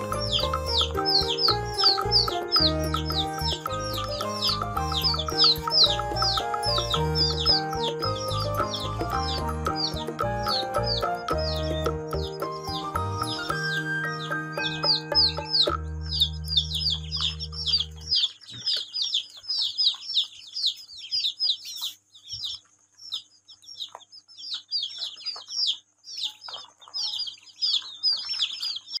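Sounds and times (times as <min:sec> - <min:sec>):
background music: 0:00.0 - 0:18.3
chicks and ducklings peeping: 0:00.0 - 0:29.0.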